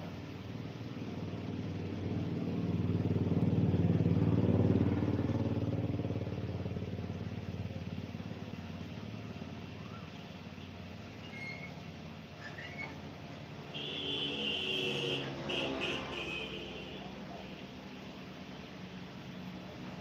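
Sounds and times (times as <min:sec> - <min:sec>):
vehicle engine running: 0:00.0 - 0:20.0.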